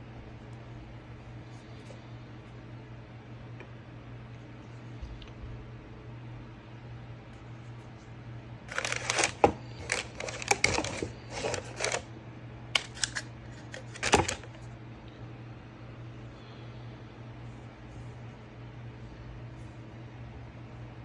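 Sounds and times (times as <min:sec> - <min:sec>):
packing paper rustling: 0:08.7 - 0:12.0, 0:12.8 - 0:14.6.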